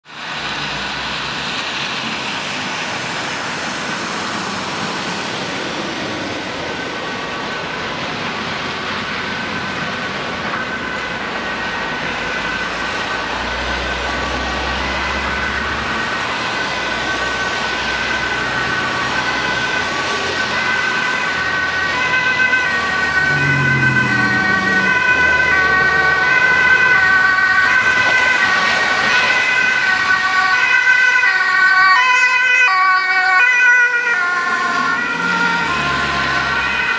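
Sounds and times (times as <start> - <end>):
street traffic rumble: 0.0 - 36.9
two-tone ambulance siren: 2.9 - 36.9.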